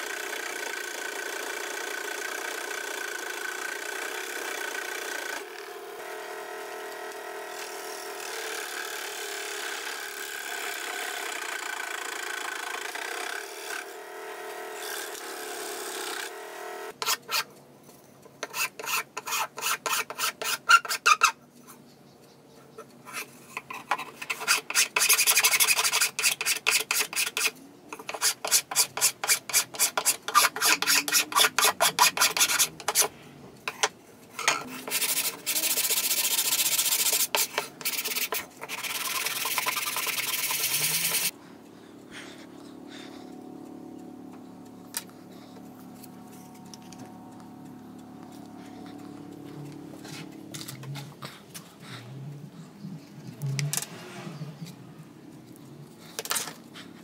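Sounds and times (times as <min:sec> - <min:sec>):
sanding wood by hand: 0:18.4 - 0:21.3, 0:23.2 - 0:33.1, 0:34.7 - 0:41.3
steady hum: 0:30.2 - 0:57.0.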